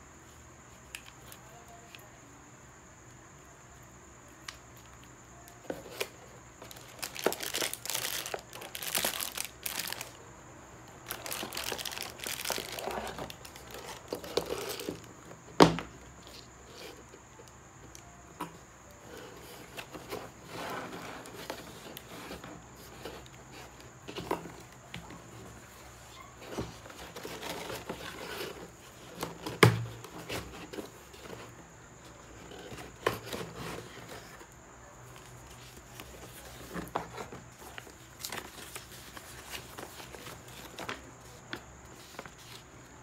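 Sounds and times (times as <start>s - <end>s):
cardboard packaging rustling: 5.7s - 10.2s, 10.9s - 15.2s, 19.4s - 34.5s, 35.1s - 42.8s.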